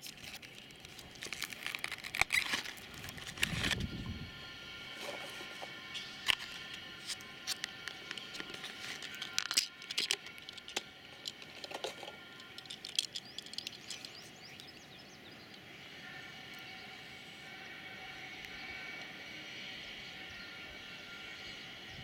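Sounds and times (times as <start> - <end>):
plastic packaging crackling: 0.0 - 3.8.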